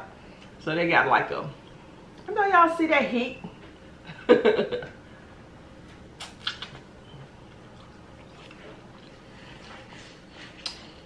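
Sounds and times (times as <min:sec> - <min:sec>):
wet chewing: 0:06.2 - 0:11.0.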